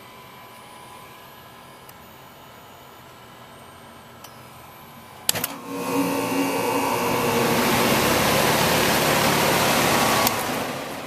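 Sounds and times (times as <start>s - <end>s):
air conditioner humming: 5.3s - 11.0s.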